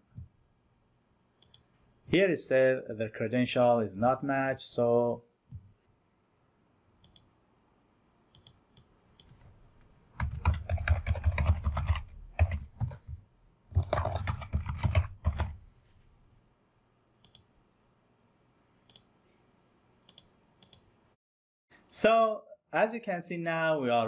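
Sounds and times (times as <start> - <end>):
typing on computer keyboard: 10.2 - 15.6.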